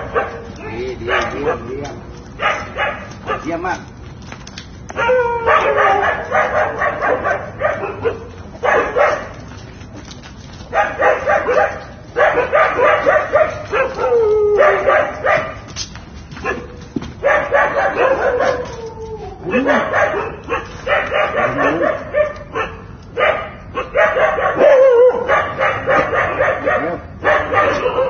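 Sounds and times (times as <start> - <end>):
dogs barking and yelping: 0.0 - 3.7, 4.4 - 28.0
dog whining cry: 4.9 - 9.2, 10.8 - 15.6, 16.4 - 28.0.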